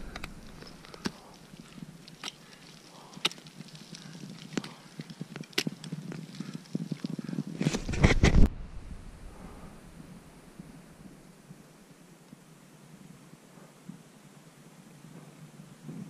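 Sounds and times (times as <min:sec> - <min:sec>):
wind buffeting microphone: 0:00.0 - 0:02.0
rustling: 0:00.0 - 0:08.6.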